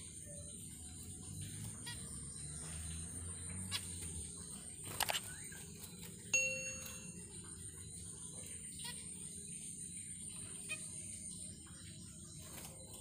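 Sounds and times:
bright bell ding: 0:06.4 - 0:07.2.

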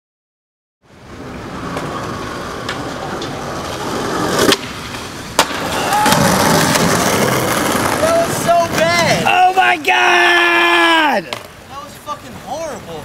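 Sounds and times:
steady rushing noise: 0:00.8 - 0:09.9.

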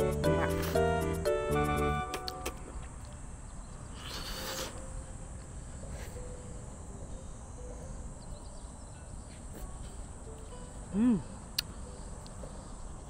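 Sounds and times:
brief hiss: 0:04.0 - 0:04.9.

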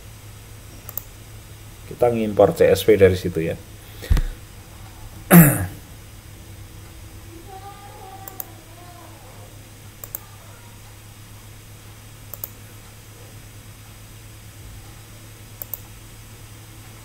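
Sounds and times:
low steady hum: 0:00.0 - 0:17.0
computer mouse double clicks: 0:10.0 - 0:10.2.

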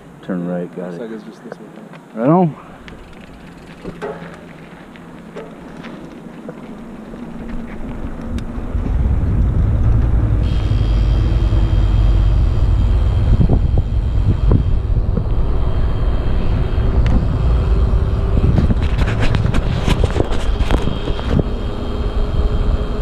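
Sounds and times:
faint thin whine: 0:00.2 - 0:08.7, 0:09.8 - 0:23.0
bike clicks and rattles: 0:02.8 - 0:10.6, 0:18.4 - 0:21.5
bike tyres rumbling on pavement: 0:02.8 - 0:23.0
wind buffeting microphone: 0:05.0 - 0:23.0.

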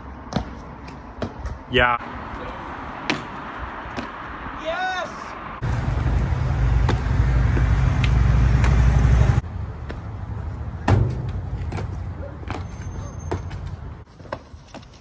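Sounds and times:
outdoor rumble: 0:05.4 - 0:14.1.

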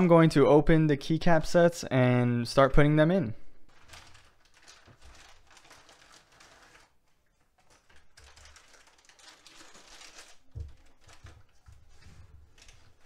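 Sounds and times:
plastic bags crinkling: 0:03.7 - 0:13.0.

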